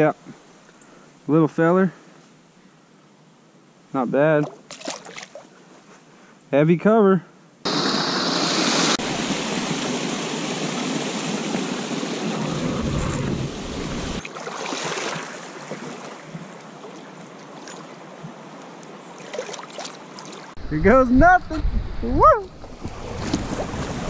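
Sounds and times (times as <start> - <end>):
river water rushing: 7.7 - 20.6
wind buffeting the microphone: 20.6 - 24.0.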